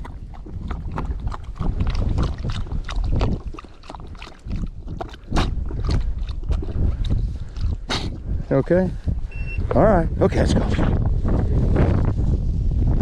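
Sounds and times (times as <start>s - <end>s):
dog lapping water: 0.0s - 8.4s
wind rumbling on microphone: 0.0s - 13.0s.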